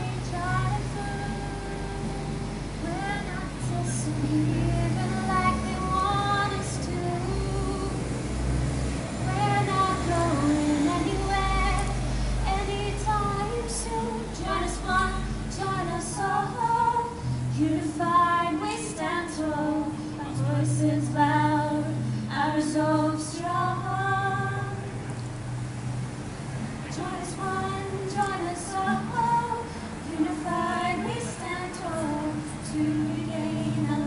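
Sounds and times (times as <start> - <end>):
women singing slow song: 0.0 - 25.1, 26.8 - 34.0
acoustic guitar: 0.0 - 34.0.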